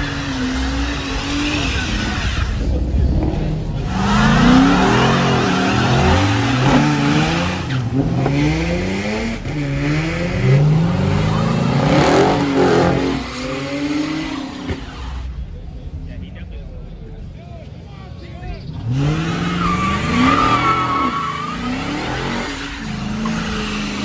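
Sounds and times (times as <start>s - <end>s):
car engine revving: 0.0s - 17.3s, 18.5s - 24.0s
spinning tyres hissing: 18.6s - 24.0s.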